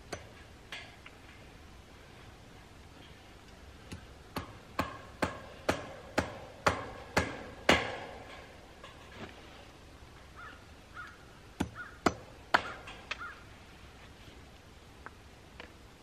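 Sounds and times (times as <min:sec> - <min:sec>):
hammer striking fence staple: 0:03.9 - 0:08.6, 0:11.6 - 0:13.2.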